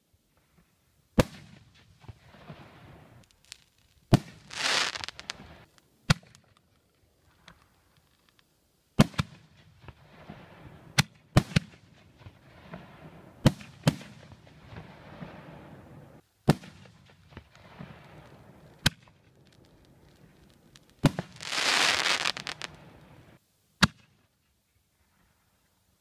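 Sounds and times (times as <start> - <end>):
crackling hiss: 0.0 - 26.0
firework shells bursting: 2.4 - 6.6, 16.7 - 23.4.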